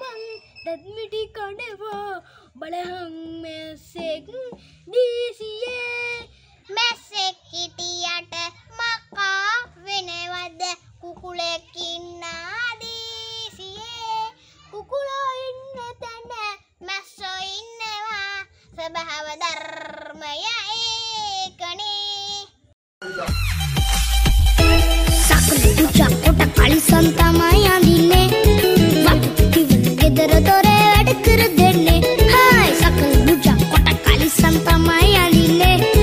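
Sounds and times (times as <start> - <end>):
boy singing: 0.0 - 22.6, 24.7 - 36.0.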